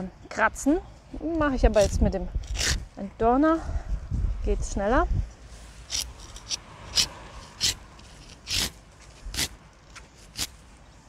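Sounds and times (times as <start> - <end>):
tool rasping thorns off cane: 1.8 - 2.9, 5.8 - 10.6.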